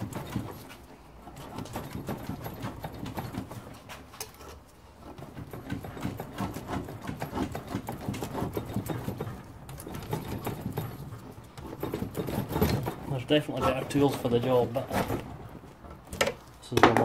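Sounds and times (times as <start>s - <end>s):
knife sawing through rubber: 0.0s - 15.8s.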